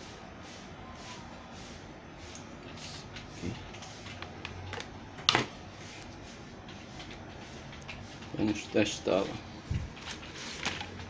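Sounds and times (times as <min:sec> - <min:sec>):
steady low hum: 0:00.0 - 0:11.0
handling and rustling: 0:08.2 - 0:11.0.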